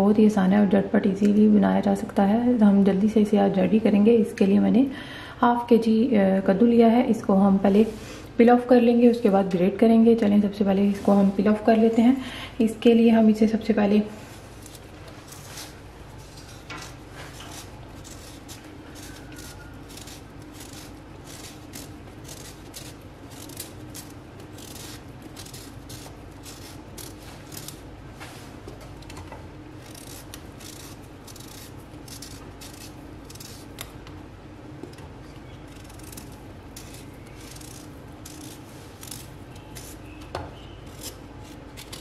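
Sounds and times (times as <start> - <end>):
knife scraping gourd skin: 14.3 - 27.9, 29.7 - 33.9, 35.4 - 42.0.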